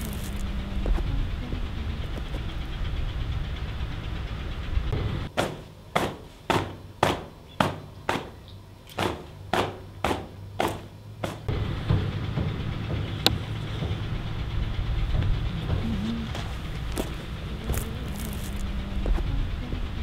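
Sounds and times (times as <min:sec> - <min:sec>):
steady low rumble: 0:00.0 - 0:05.4, 0:11.0 - 0:20.0.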